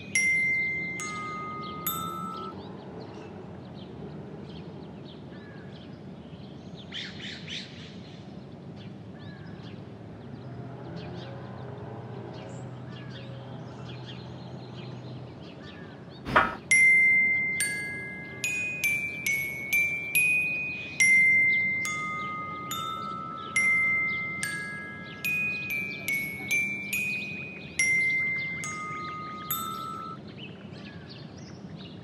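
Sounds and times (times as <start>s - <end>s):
birds chirping: 0.0s - 2.5s, 16.3s - 30.2s
glockenspiel notes: 0.0s - 2.6s, 16.3s - 30.2s.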